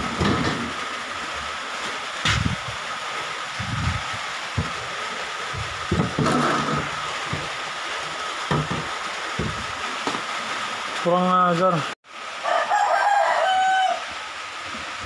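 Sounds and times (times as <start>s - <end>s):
dull low bumps: 3.6s - 4.9s, 5.5s - 7.6s, 8.5s - 10.2s.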